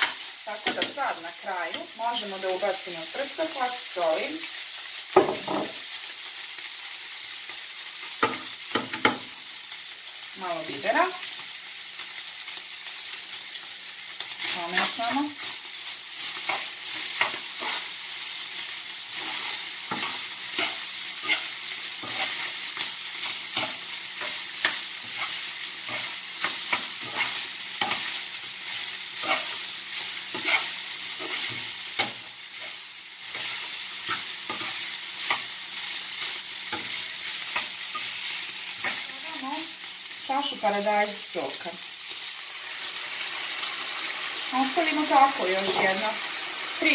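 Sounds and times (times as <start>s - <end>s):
spoon scraping a pan: 0.0s - 2.4s, 14.2s - 15.6s, 16.2s - 39.2s
meat sizzling in a frying pan: 0.0s - 46.9s.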